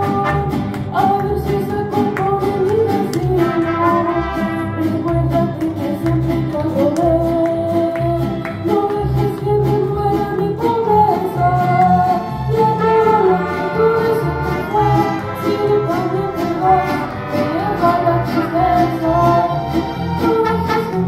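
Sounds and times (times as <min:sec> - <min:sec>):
woman singing into a microphone: 0:00.0 - 0:21.0
bowed violins: 0:02.2 - 0:21.0.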